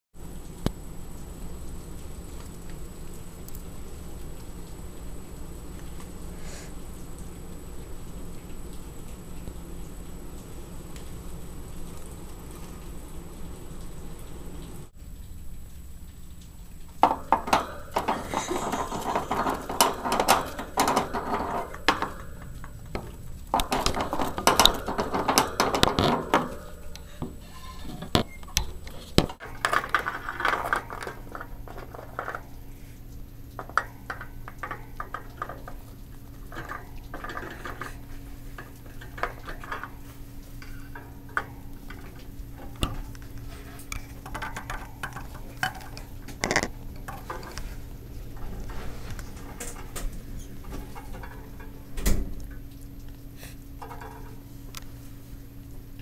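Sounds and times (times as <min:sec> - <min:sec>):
hamster rattling cage wire bars: 0:17.0 - 0:28.1, 0:29.2 - 0:52.7.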